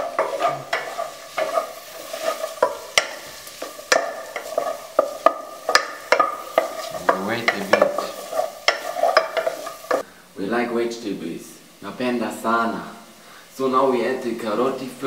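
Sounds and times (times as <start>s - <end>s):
spatula knocking against pot: 0.0s - 10.0s
light sizzle of frying: 0.0s - 15.0s.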